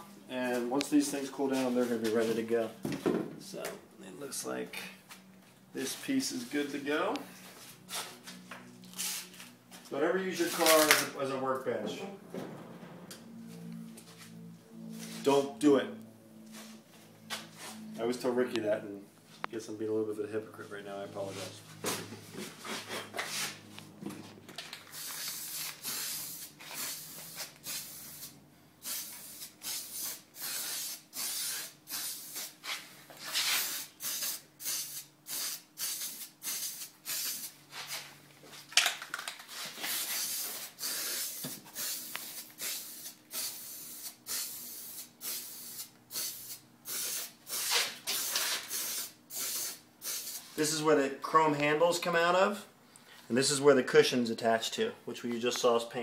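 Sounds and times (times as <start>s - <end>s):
spray can hissing: 9.0s - 9.3s, 24.9s - 32.7s, 33.3s - 37.6s, 39.6s - 50.6s.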